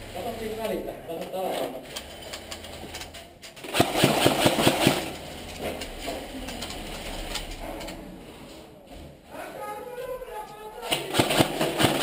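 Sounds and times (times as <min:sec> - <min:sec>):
airsoft gun firing rapid shots: 0:03.6 - 0:05.2, 0:10.9 - 0:12.0.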